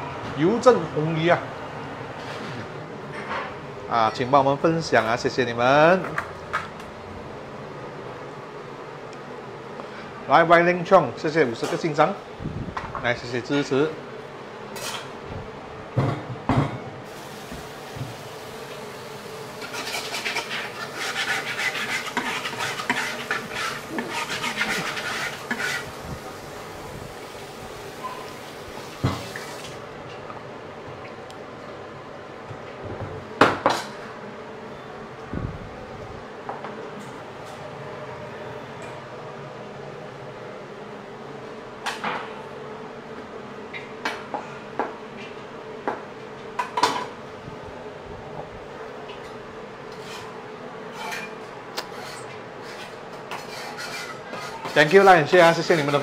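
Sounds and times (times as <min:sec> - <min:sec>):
steady hum: 0:00.0 - 0:53.2
scratchy scrubbing in metal sink: 0:19.6 - 0:26.2, 0:51.9 - 0:56.0.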